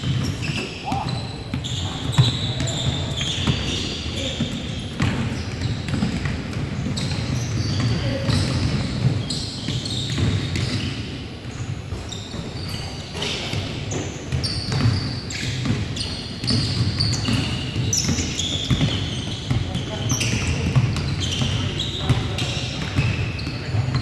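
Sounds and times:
basketball bouncing: 0.0s - 10.9s, 14.4s - 15.8s, 16.4s - 23.8s
sneakers squeaking: 0.0s - 24.0s
players' voices: 0.6s - 9.2s.

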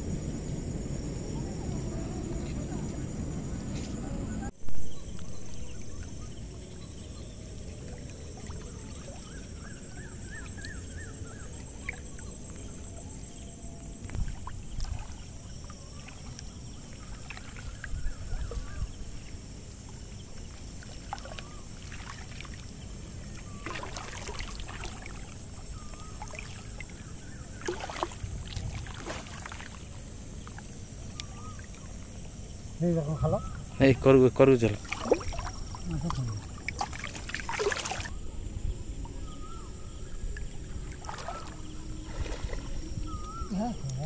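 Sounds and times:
water sloshing around wader: 1.1s - 44.0s
water splashing: 5.3s - 13.3s, 14.0s - 38.2s, 39.0s - 44.0s
high-pitched insect buzz: 20.0s - 33.7s.

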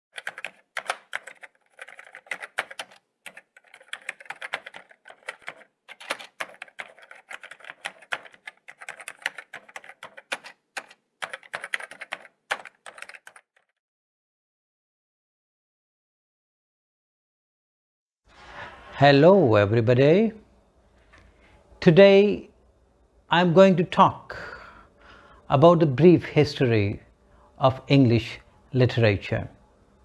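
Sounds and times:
keyboard typing clicks: 0.1s - 13.6s.

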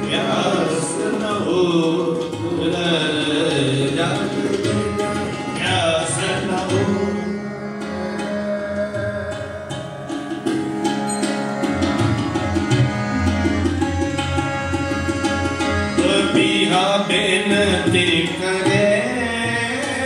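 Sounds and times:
harmonium held notes: 0.0s - 20.0s
tabla: 0.0s - 20.0s.

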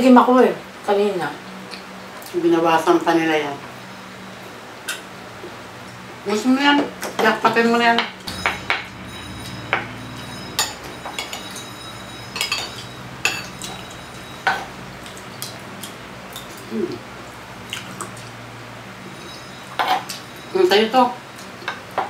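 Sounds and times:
low hum: 8.2s - 17.6s.

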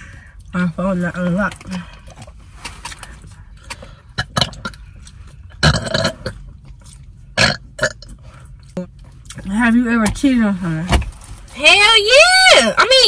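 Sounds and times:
person burping: 4.2s - 4.8s, 5.6s - 6.4s, 7.4s - 8.1s
sharp throat or mouth sounds: 4.2s - 4.8s, 5.6s - 6.4s, 7.4s - 8.2s.

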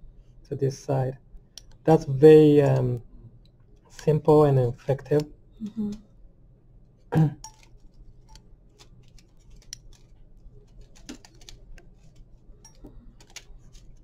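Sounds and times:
metal surgical instruments clicking: 7.4s - 10.1s.

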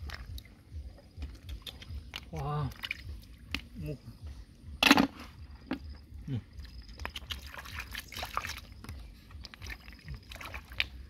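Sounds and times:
hands splashing in stream water: 7.0s - 11.0s.

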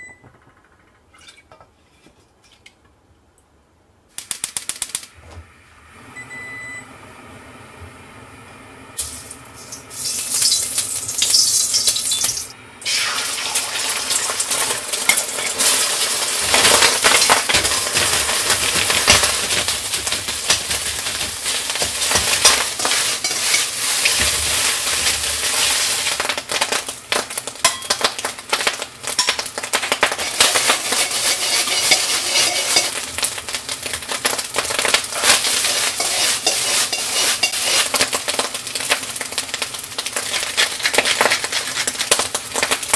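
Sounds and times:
rice sizzling in a wok: 8.9s - 42.9s
ladle scraping and clacking wok: 14.4s - 26.7s, 27.6s - 38.5s, 40.0s - 42.6s.

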